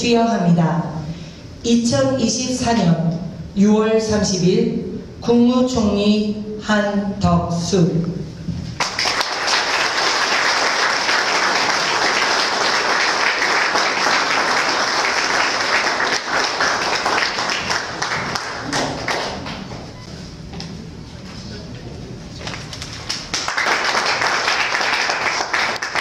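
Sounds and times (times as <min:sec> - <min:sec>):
audience applauding: 0:08.8 - 0:19.7, 0:22.8 - 0:26.0.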